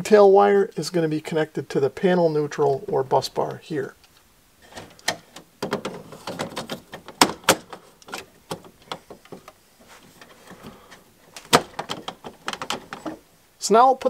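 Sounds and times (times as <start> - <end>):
breaker and wires rattling: 4.7 - 9.6, 10.2 - 13.3.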